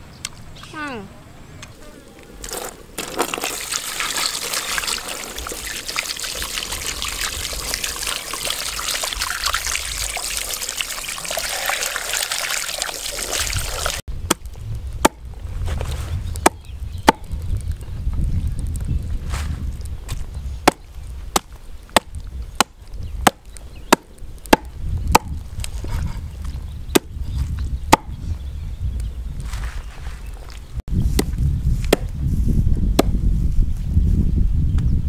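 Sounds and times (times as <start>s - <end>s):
water splashing over meat: 3.0s - 14.0s.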